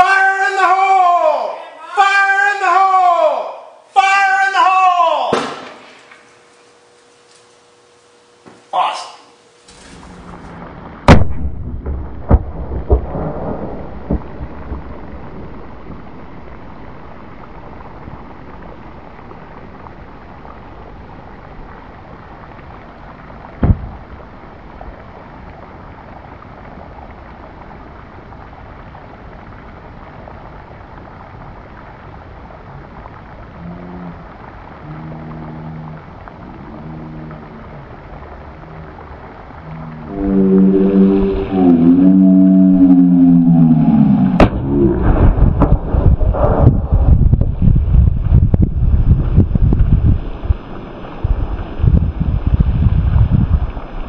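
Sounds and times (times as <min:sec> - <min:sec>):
steady hiss: 0:03.6 - 0:11.1
airbag inflator bang: 0:05.3 - 0:06.1.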